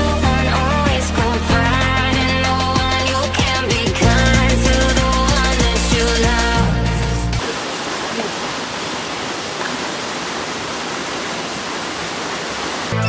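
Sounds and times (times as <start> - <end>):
background music: 0.0 - 7.4
waterfall rushing: 7.4 - 13.0.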